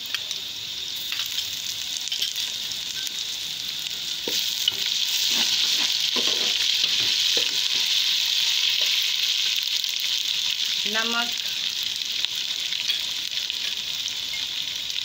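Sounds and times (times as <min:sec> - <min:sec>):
onions sizzling in hot oil: 0:00.0 - 0:15.0
spatula scraping a metal pot: 0:04.8 - 0:07.8.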